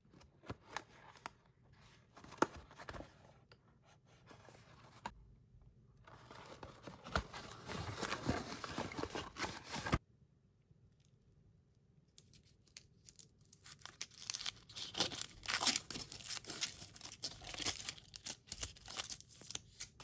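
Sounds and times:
cardboard rustling and tearing: 0:06.2 - 0:10.0.

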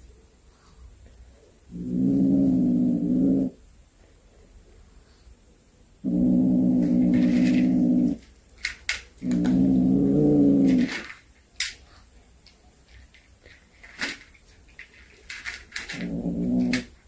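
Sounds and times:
cat growling: 0:01.7 - 0:03.6, 0:06.0 - 0:08.2, 0:09.2 - 0:11.0, 0:15.9 - 0:17.0.

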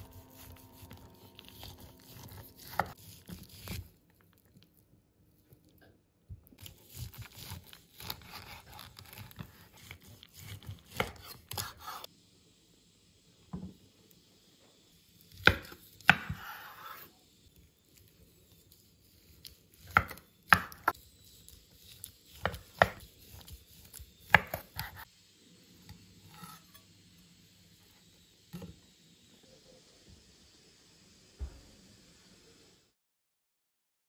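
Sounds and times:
knife sawing through meat: 0:00.0 - 0:03.9, 0:06.6 - 0:12.1, 0:18.4 - 0:25.0.

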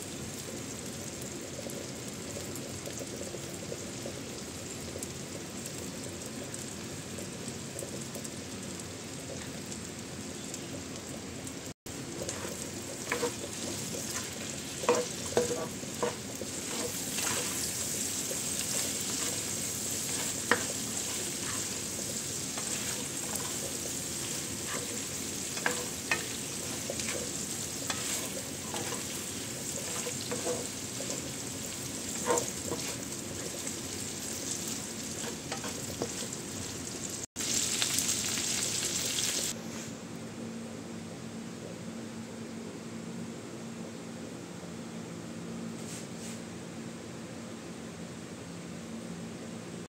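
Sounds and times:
shrimp sizzling in pan: 0:00.0 - 0:39.6
spatula tapping and scraping pan: 0:12.2 - 0:33.9, 0:34.7 - 0:36.3.

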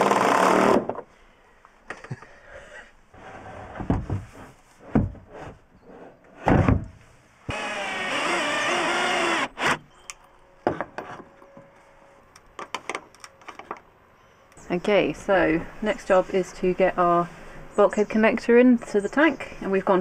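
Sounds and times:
knocks and thuds of handling: 0:03.8 - 0:05.3
power tool running: 0:07.5 - 0:09.8.

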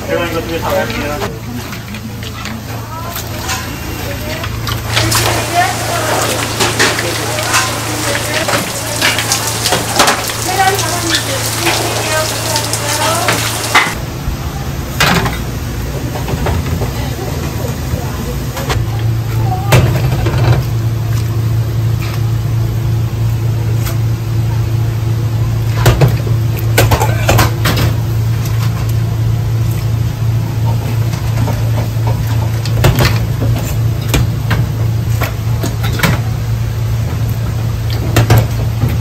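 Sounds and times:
low machine hum: 0:00.0 - 0:39.0
steel bowls clinking: 0:04.9 - 0:14.0.

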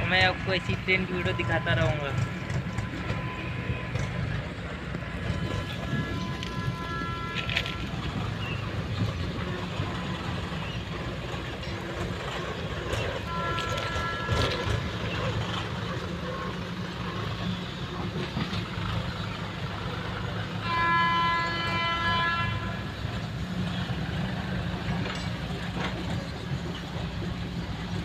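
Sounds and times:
train horn: 0:00.5 - 0:10.6, 0:13.0 - 0:15.6, 0:20.4 - 0:23.3.

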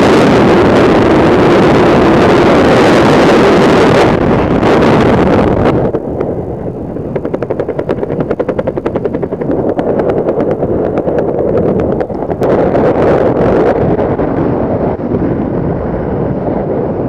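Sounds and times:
wind rushing over microphone: 0:00.0 - 0:17.0
parachute fabric fluttering: 0:03.1 - 0:14.9.

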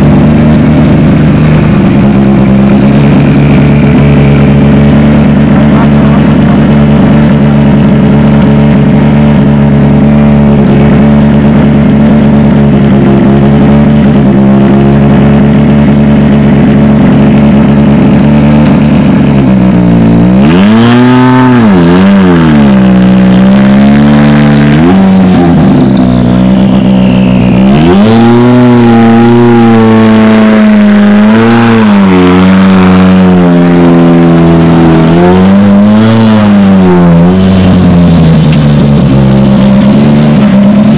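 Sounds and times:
rally car engine idling and revving: 0:00.0 - 0:40.9
turbo whistle: 0:24.8 - 0:29.8.

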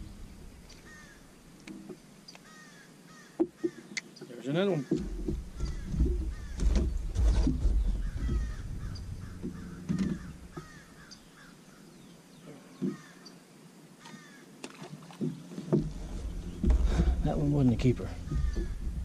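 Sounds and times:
bird harsh calls: 0:00.7 - 0:01.3, 0:02.4 - 0:13.4, 0:18.0 - 0:18.9
knocks and bumps on a boat: 0:04.8 - 0:11.0, 0:15.0 - 0:19.0.

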